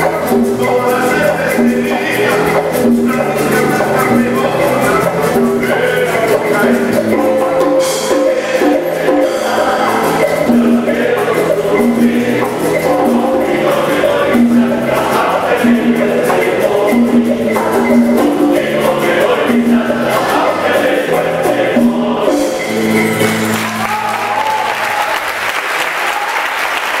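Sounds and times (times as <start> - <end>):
latin band with group vocals: 0.0 - 26.3
audience applause: 23.0 - 27.0.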